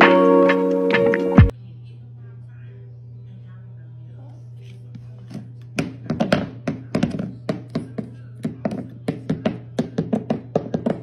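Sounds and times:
food bowl knocking on wooden floor: 0:05.8 - 0:11.0.

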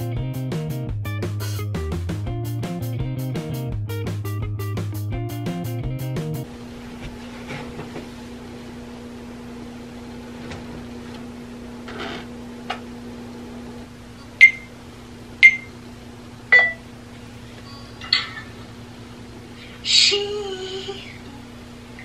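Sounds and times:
low electrical hum: 0:06.4 - 0:22.0
short electronic beeps: 0:14.4 - 0:14.7, 0:15.4 - 0:15.7.

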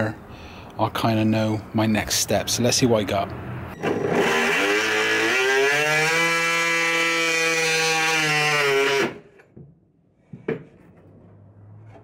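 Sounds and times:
multi-tool buzzing through plywood: 0:03.8 - 0:09.4.

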